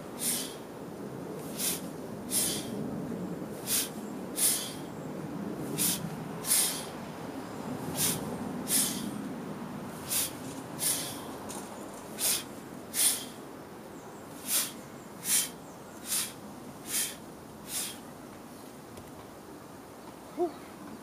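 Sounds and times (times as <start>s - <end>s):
sharp forceful breaths: 0.0s - 0.7s, 1.4s - 2.8s, 3.6s - 5.0s, 5.6s - 7.1s, 7.8s - 9.2s, 9.9s - 11.4s, 12.0s - 13.5s, 14.3s - 18.1s.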